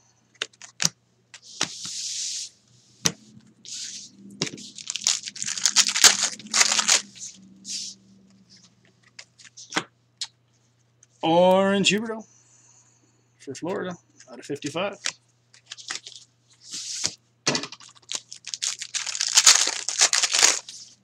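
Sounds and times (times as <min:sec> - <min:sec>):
cards tapping and rustling: 0:00.4 - 0:02.0, 0:15.0 - 0:16.2, 0:17.0 - 0:20.8.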